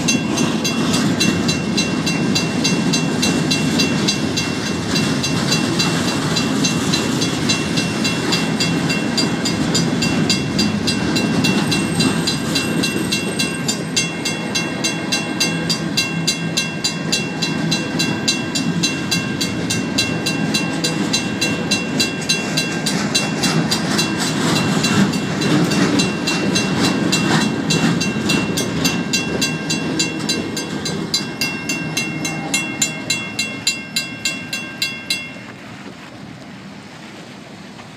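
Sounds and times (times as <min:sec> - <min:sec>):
mechanical crossing bell ringing: 0:00.0 - 0:35.6
train wheels rumbling on rails: 0:00.0 - 0:37.9.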